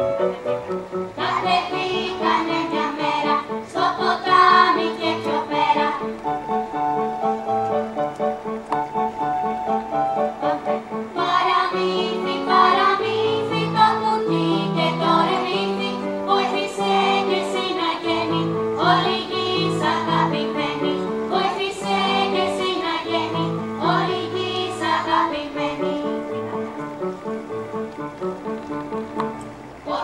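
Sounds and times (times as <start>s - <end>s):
electronic keyboard chords: 0.0s - 29.9s
children's choir singing: 1.2s - 6.5s, 10.4s - 26.5s, 29.8s - 30.0s.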